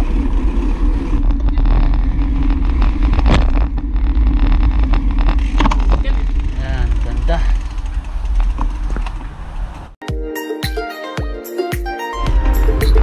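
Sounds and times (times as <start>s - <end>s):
bicycle tyre and road noise: 0.0s - 10.0s
wind rumbling on microphone: 0.0s - 10.0s.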